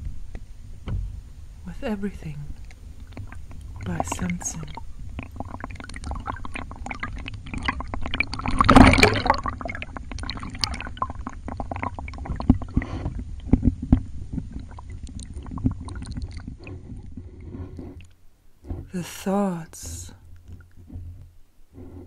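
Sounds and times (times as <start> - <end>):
water sloshing and gurgling: 0.0 - 19.0, 19.8 - 22.0
rush of water: 2.5 - 16.9
small clicks and pops: 10.0 - 17.1.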